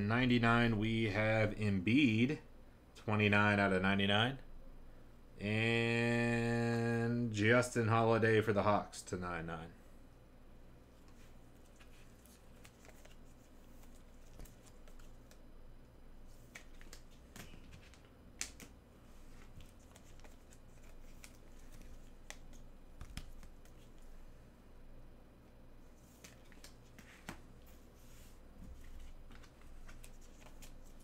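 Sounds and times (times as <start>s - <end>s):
low electrical hum: 0.0s - 31.0s
trading cards rustling and clicking: 11.0s - 15.4s, 16.3s - 24.1s, 26.0s - 31.0s.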